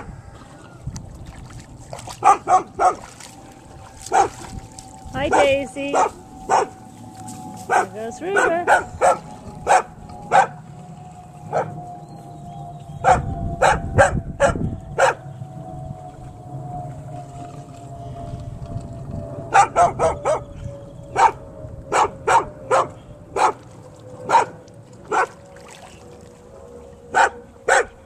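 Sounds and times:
dog barking: 2.2s - 3.0s, 5.4s - 6.8s, 7.7s - 10.5s, 13.0s - 15.2s, 19.5s - 20.4s, 21.2s - 23.6s, 24.3s - 25.3s, 27.1s - 28.0s.

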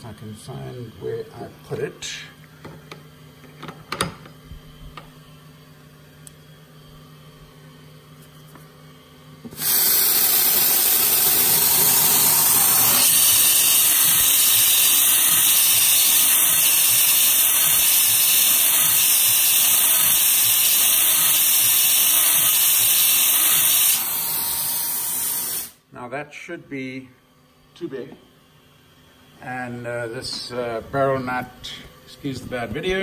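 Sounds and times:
faint machine hum: 0.0s - 9.6s, 24.0s - 33.0s
coolant spray hiss: 9.6s - 25.8s.

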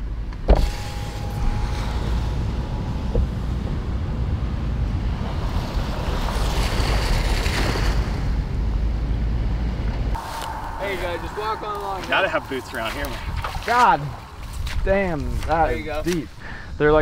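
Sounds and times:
wind buffeting microphone: 1.3s - 17.0s
ocean surf rushing: 10.2s - 15.6s.

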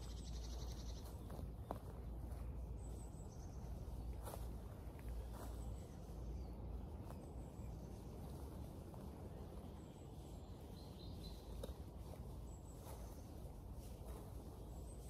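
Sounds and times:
bird chirps: 0.0s - 4.5s
hands rustling soil and leaves: 0.0s - 15.0s.

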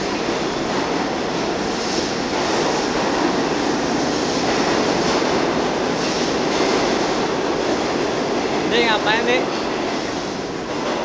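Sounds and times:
subway train wheels rumbling: 0.0s - 11.0s.

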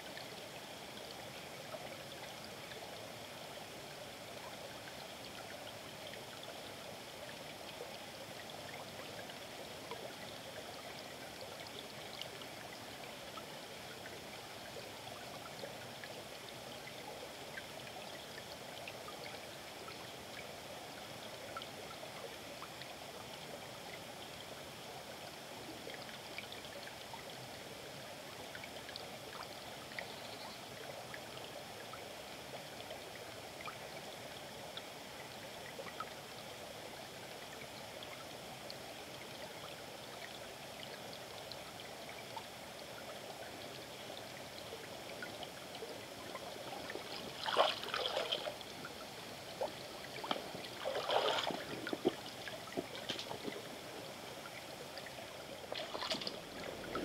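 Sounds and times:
river flowing over rocks: 43.8s - 57.0s
water drips: 44.6s - 54.6s, 55.6s - 57.0s
water splashing: 46.7s - 53.9s, 55.6s - 57.0s.

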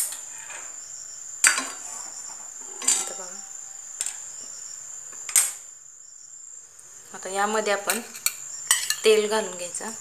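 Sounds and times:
metal utensils clinking: 2.8s - 3.5s, 7.9s - 9.2s.

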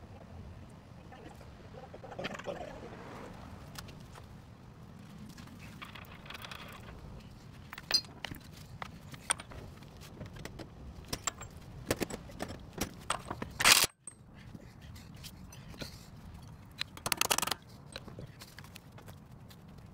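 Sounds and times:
metal tools clinking: 7.6s - 8.3s.

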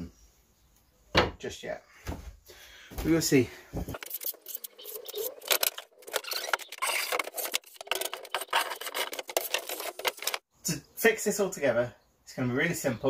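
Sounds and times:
hand plane scraping wood: 4.0s - 10.4s.

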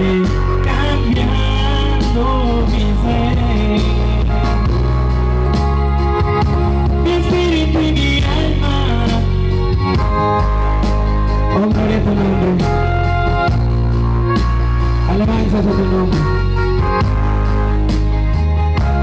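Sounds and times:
person singing: 0.0s - 9.8s, 11.4s - 13.6s
worship band over loudspeakers: 0.0s - 19.0s.

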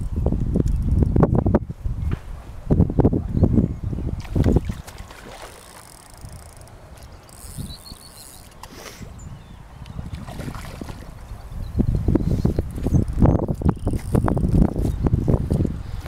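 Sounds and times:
wind buffeting microphone: 0.0s - 7.9s, 8.5s - 16.0s.

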